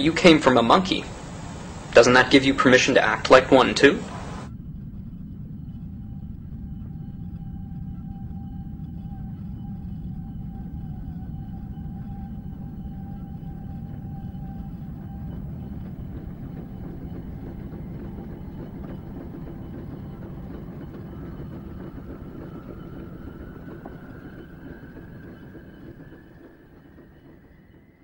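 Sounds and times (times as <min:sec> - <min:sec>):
droning ambient music: 0:00.0 - 0:28.0
thin high tone climbing: 0:00.0 - 0:28.0
dense low rumble: 0:00.1 - 0:28.0.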